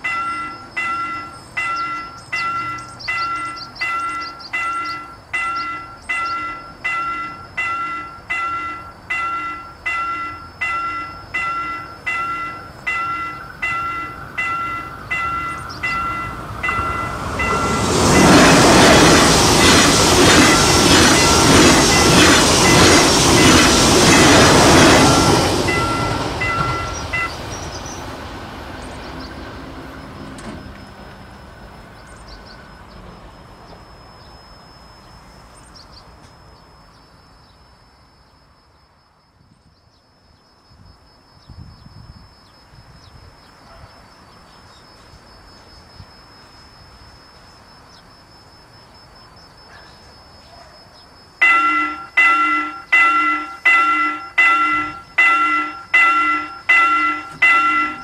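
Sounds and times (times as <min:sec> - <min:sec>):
level crossing bell ringing: 0:00.0 - 0:18.8, 0:20.6 - 0:27.4, 0:51.4 - 0:58.0
train passing with wheel beats: 0:00.0 - 0:39.6, 0:41.9 - 0:58.0.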